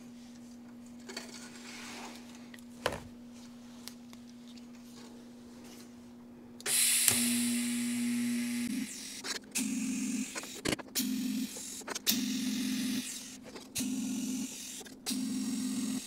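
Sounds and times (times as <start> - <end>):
welder electrical hum: 0.0 - 16.0
welding arc hiss and buzz: 6.6 - 16.0.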